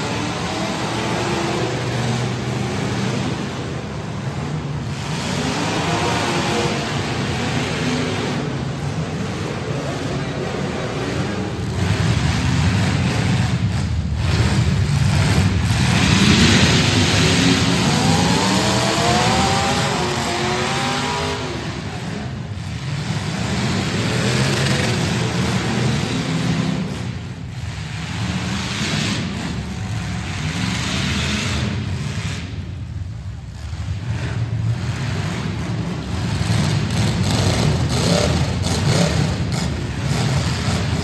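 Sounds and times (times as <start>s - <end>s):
car engines running loud: 0.0s - 41.0s
engine revving up and down: 0.0s - 41.0s.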